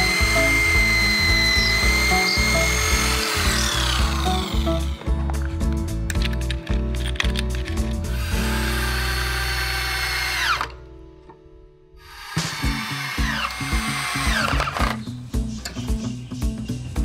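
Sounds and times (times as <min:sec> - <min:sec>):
drill driving screws into wood: 0:00.0 - 0:05.0, 0:08.1 - 0:10.8, 0:12.0 - 0:15.0
background music: 0:00.0 - 0:17.0.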